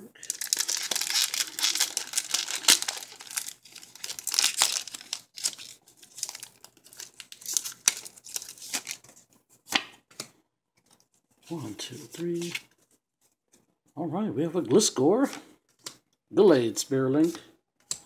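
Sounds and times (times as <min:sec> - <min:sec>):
foil wrapper tearing: 0:00.2 - 0:09.0
foil wrapper crinkling: 0:00.2 - 0:09.1.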